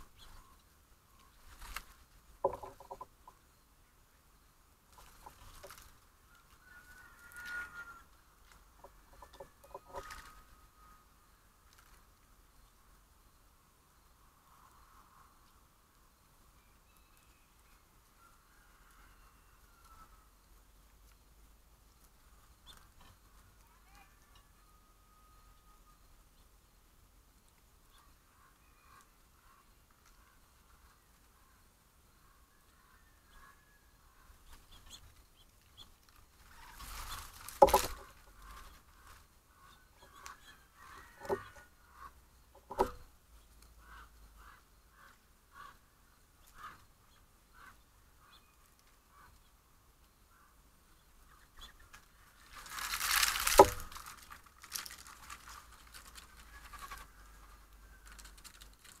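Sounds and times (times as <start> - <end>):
faint bird chirps: 0.0 - 52.7
animals rustling and scrabbling: 1.2 - 3.4, 4.9 - 10.7, 34.4 - 44.6, 51.6 - 59.0
rush of animals scattering: 52.5 - 57.0.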